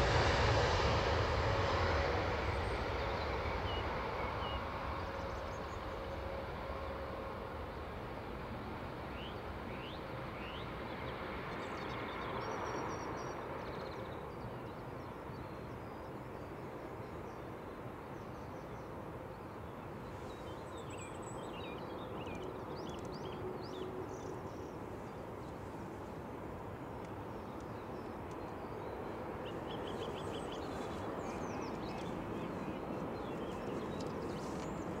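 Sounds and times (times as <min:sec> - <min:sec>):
distant jet engines roaring: 0:00.0 - 0:35.0
small birds chirping: 0:26.7 - 0:35.0.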